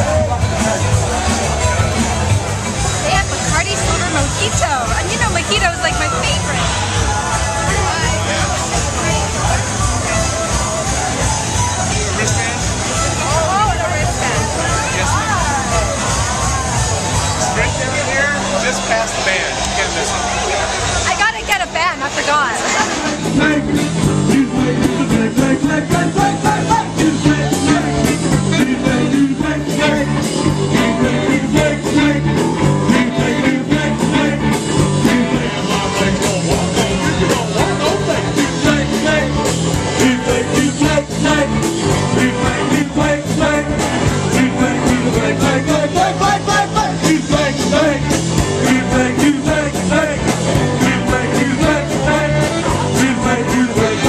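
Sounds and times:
steady drum beat: 0:00.0 - 0:20.0, 0:20.9 - 0:54.0
band music: 0:00.0 - 0:54.0
bass line: 0:00.0 - 0:54.0
guitar: 0:00.0 - 0:54.0
person singing: 0:23.0 - 0:54.0.

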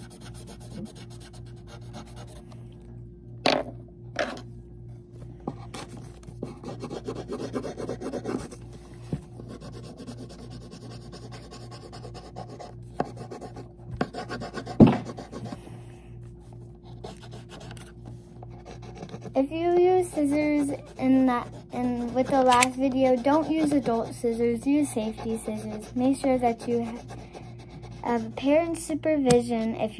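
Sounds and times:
pencil scratching on paper: 0:00.0 - 0:02.4, 0:05.7 - 0:08.6, 0:09.4 - 0:15.6, 0:16.8 - 0:17.9, 0:18.5 - 0:28.6.

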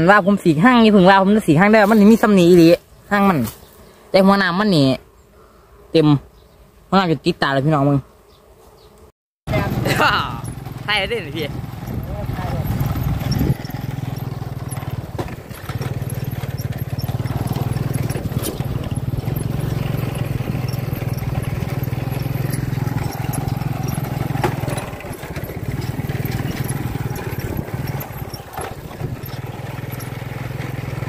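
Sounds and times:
engine humming: 0:09.5 - 0:31.0.

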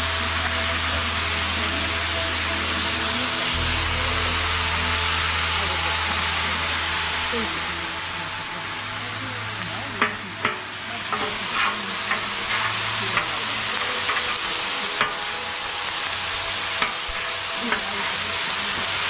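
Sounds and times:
meat sizzling on griddle: 0:00.0 - 0:19.0
metal spatulas clacking on griddle: 0:10.0 - 0:13.4.

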